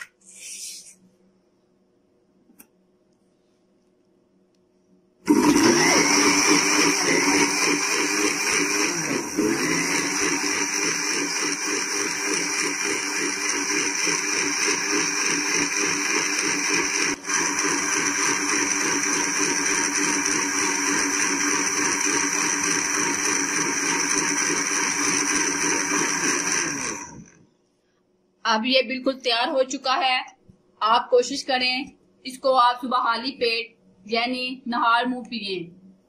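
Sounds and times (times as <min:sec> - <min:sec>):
electric blender running: 0:05.3 - 0:27.4.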